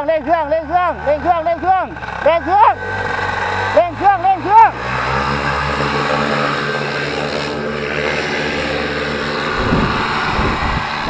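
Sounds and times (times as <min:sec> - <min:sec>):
propeller drone: 0:00.0 - 0:11.0
two-stroke engine at high throttle: 0:00.0 - 0:11.0
low buffeting thuds: 0:09.4 - 0:11.0.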